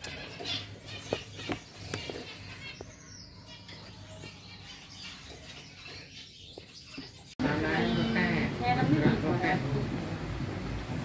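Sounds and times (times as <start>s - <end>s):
faint finch chirps: 0.0s - 7.4s.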